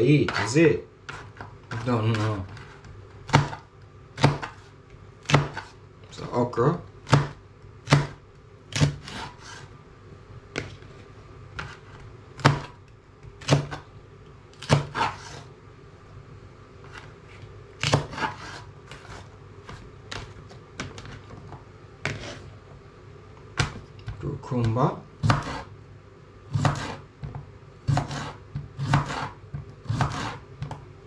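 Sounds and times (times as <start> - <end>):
knife chopping on plastic board: 0.2 - 0.5, 1.1 - 5.8, 7.0 - 9.6, 11.6 - 13.8, 14.6 - 15.4, 17.8 - 21.4, 22.0 - 22.4, 23.6 - 25.7, 26.5 - 30.8.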